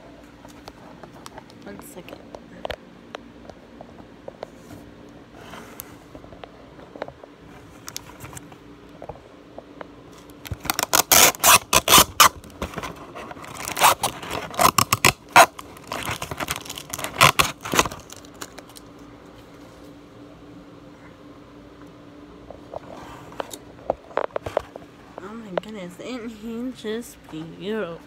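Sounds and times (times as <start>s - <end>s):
toy packaging scraping and rustling: 10.4s - 18.9s.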